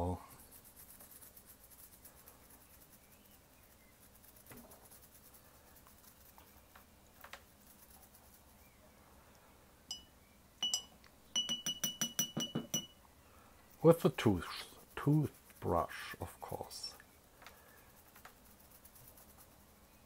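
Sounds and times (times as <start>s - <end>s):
toothbrush scrubbing circuit board: 0.0s - 3.0s, 4.0s - 6.5s, 17.9s - 19.8s
toothbrush clinking on glass jar: 9.9s - 13.0s.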